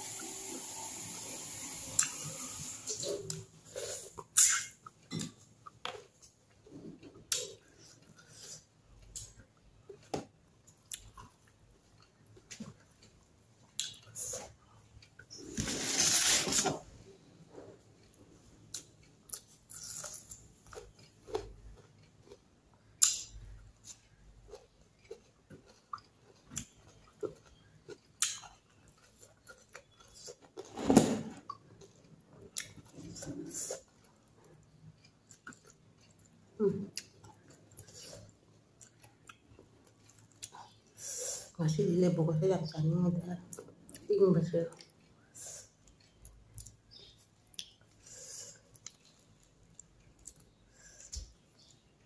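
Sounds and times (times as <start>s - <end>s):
person chewing food: 2.9s - 15.7s, 17.1s - 41.0s, 44.7s - 52.0s
wet chewing: 31.4s - 40.9s.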